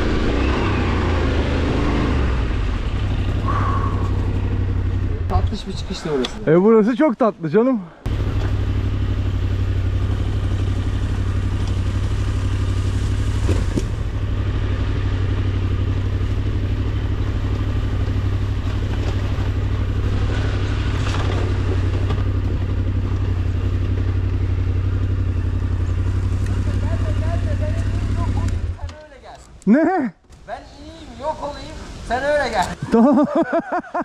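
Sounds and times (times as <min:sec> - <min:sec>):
motorcycle engine running: 0:00.0 - 0:05.8, 0:08.1 - 0:28.9.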